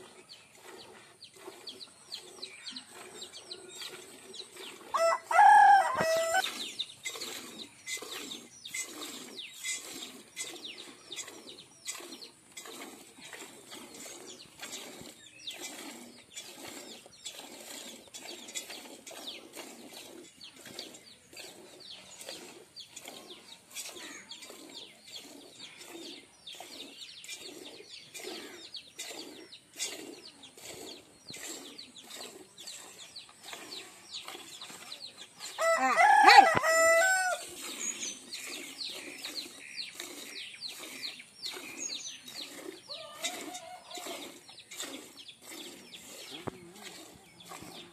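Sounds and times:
rooster crowing: 0:04.9 - 0:06.4, 0:35.6 - 0:37.4, 0:42.9 - 0:44.0.

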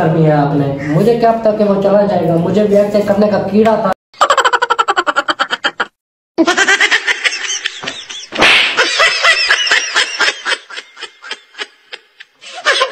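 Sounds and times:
laughter in rhythmic bursts: 0:04.2 - 0:12.9.

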